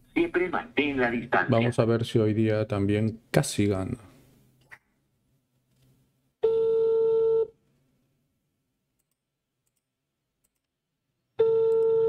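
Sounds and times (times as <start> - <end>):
telephone ringback tone: 6.4 - 7.5, 11.4 - 12.0.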